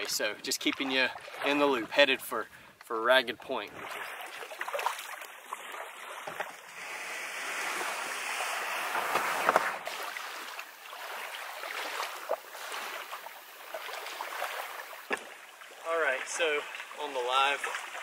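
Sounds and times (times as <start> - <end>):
small waves lapping on sand: 3.7 - 18.0.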